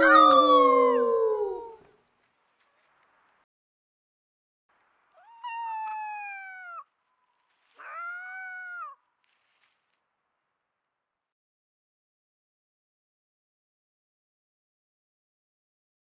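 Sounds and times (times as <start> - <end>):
wolf howling: 0.0 - 1.9.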